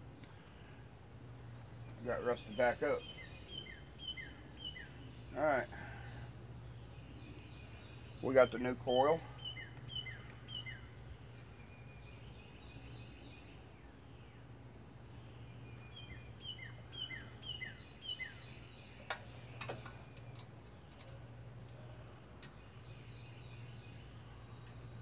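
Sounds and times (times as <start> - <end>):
small birds chirping: 0.0 - 25.0
steady low hum: 0.0 - 25.0
sharp clicks of ignition coil: 19.0 - 21.8, 22.4 - 22.6.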